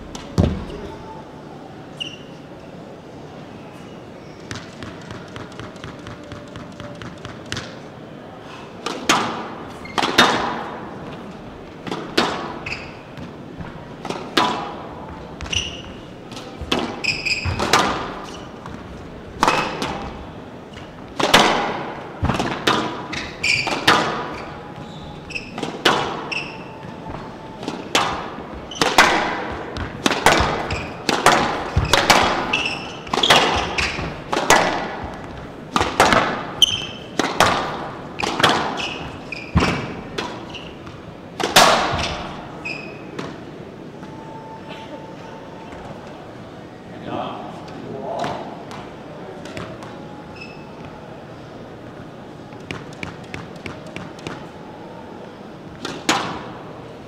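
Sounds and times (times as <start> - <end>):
rackets hitting squash ball: 0.0 - 0.9, 4.4 - 8.0, 8.7 - 44.1, 47.6 - 54.6, 55.4 - 57.0
court shoes squeaking: 0.0 - 1.2, 1.8 - 46.4, 47.6 - 57.0
ball hitting court walls: 0.1 - 0.8, 8.8 - 43.5, 55.7 - 56.5.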